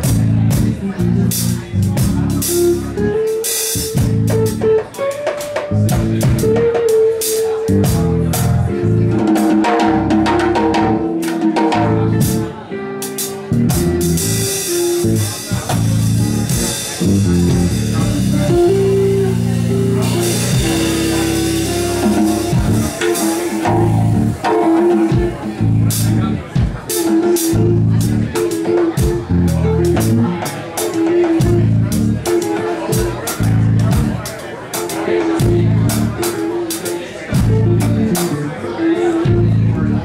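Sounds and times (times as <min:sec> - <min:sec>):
electric guitar picking: 0:00.0 - 0:40.0
walking bass: 0:00.0 - 0:40.0
drum kit cymbal and snare hits: 0:09.3 - 0:27.6.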